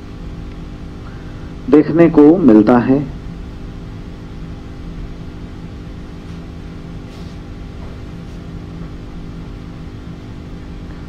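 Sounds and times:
low electrical hum: 0.0s - 11.0s
faint rustles: 6.2s - 8.6s.

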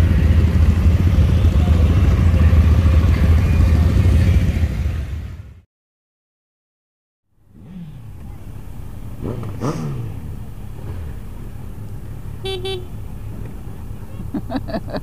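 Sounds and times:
motorcycle engine and road noise: 0.0s - 5.7s, 7.4s - 15.0s
engine revving: 7.4s - 14.2s.

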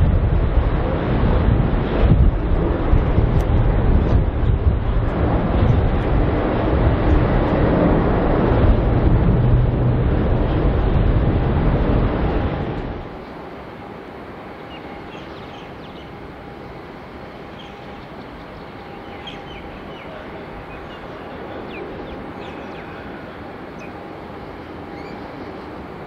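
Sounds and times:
airport noise: 0.0s - 26.0s
distant traffic hum: 0.0s - 26.0s
loud rush of noise: 0.0s - 26.0s
small birds chirping: 14.6s - 16.2s, 17.5s - 24.0s, 24.9s - 25.7s.

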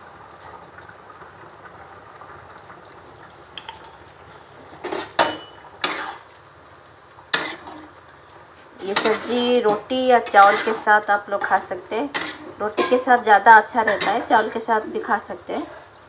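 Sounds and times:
curry simmering: 0.0s - 16.0s
metal spoon scraping a pan: 4.8s - 6.3s, 7.3s - 8.0s, 8.8s - 14.7s.

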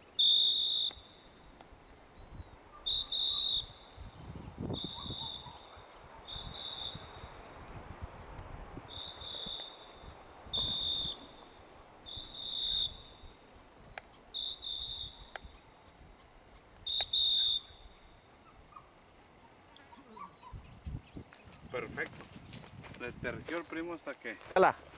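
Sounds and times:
high piercing signal tone: 0.1s - 7.7s, 8.9s - 13.5s, 14.3s - 15.6s, 16.9s - 18.2s.

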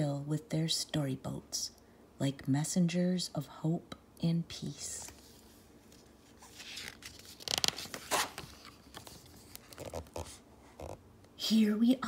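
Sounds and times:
book page turning: 5.0s - 11.0s.

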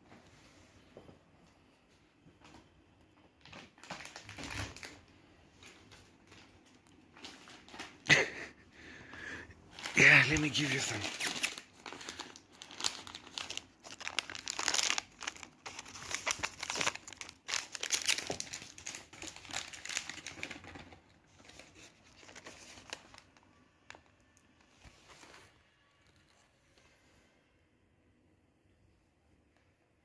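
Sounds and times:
plastic pouches crinkling: 3.4s - 8.5s, 9.7s - 26.4s.

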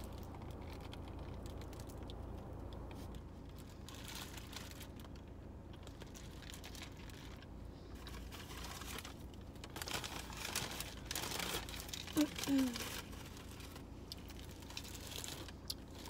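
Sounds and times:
low steady hum: 0.0s - 16.0s
paper wrapper crinkling: 5.8s - 16.0s.

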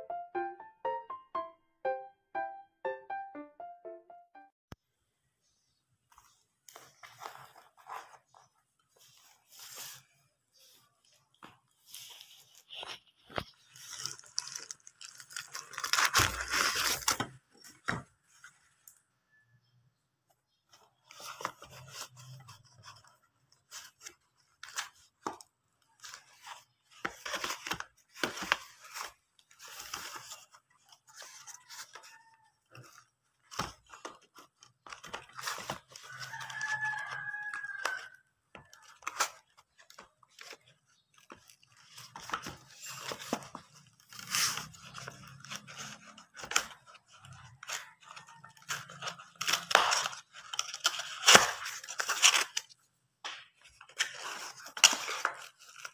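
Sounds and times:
cardboard flaps tearing: 13.7s - 17.4s, 49.3s - 52.7s.

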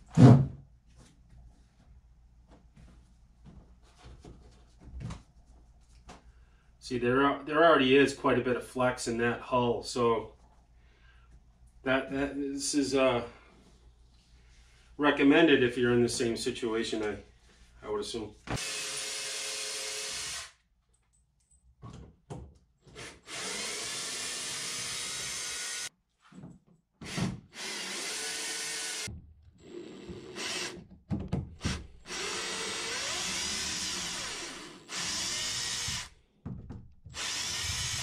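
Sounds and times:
cordless drill removing screws: 18.6s - 20.5s, 31.6s - 36.1s, 37.1s - 38.0s.

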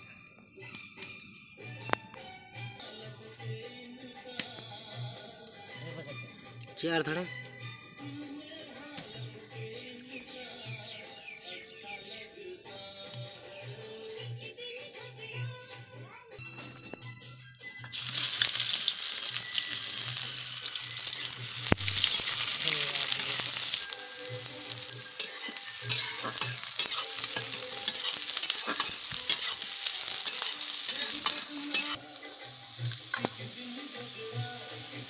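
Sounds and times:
onions sizzling in hot oil: 17.9s - 35.0s
spatula scraping a pan: 20.6s - 32.0s.

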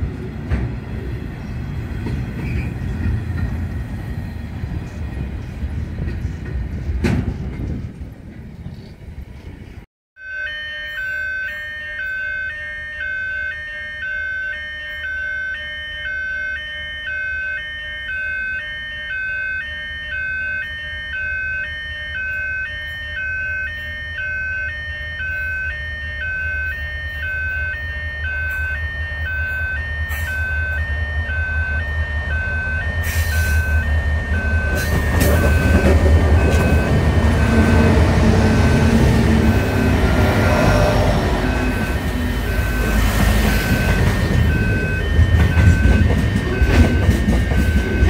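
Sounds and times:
train rumble: 0.0s - 9.9s, 26.0s - 48.0s
level crossing alarm pulsing: 10.2s - 48.0s.

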